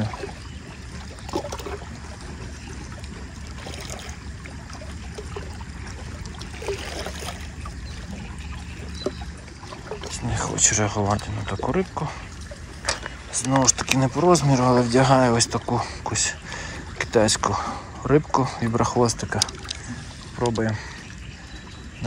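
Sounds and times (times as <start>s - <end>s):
faint water sounds: 0.0s - 22.0s
reel clicks: 12.5s - 15.4s, 18.6s - 21.7s.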